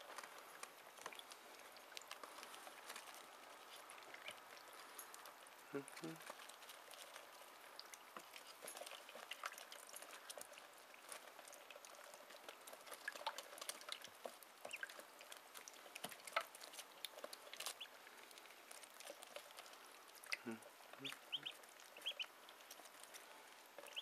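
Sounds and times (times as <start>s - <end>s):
ducklings peeping: 0.0s - 5.0s, 11.7s - 24.0s
ducklings dabbling in water: 0.0s - 24.0s.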